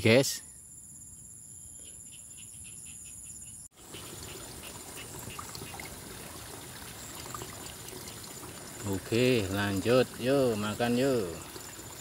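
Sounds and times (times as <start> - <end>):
crickets chirping: 0.0 - 12.0
faint insect calls: 0.0 - 12.0
water trickling in ditch: 3.7 - 12.0.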